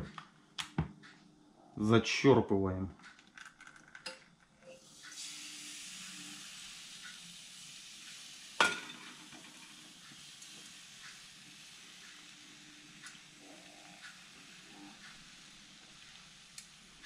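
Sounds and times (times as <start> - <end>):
batter sizzling in frying pan: 4.8 - 17.0
metal ladle knocking pan: 8.6 - 9.2.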